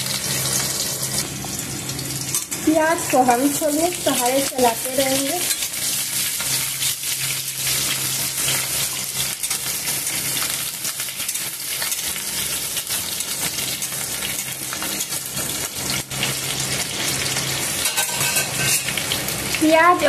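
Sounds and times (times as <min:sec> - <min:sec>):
onions sizzling in hot oil: 0:00.0 - 0:20.0
metal spatula scraping pan: 0:17.8 - 0:19.0.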